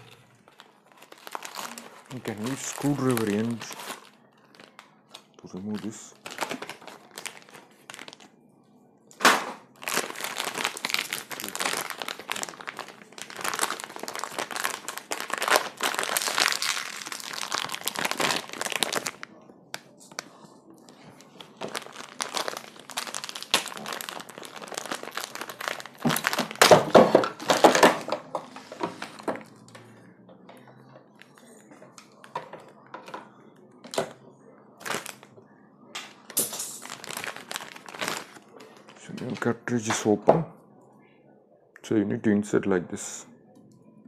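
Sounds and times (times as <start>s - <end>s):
plastic bag crinkling: 0.0s - 8.3s, 9.7s - 29.8s, 34.8s - 35.3s, 36.4s - 40.1s.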